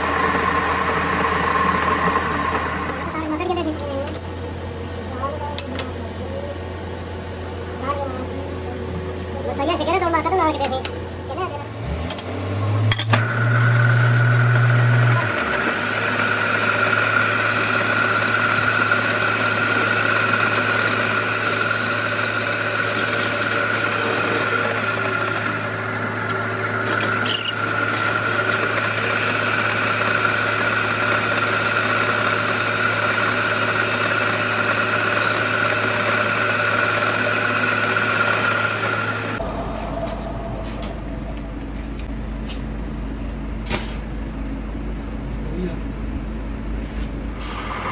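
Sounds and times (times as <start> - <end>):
high-pitched lathe whine: 0.0 - 3.4, 13.1 - 42.1
lathe motor hum: 0.0 - 3.4, 12.7 - 42.1.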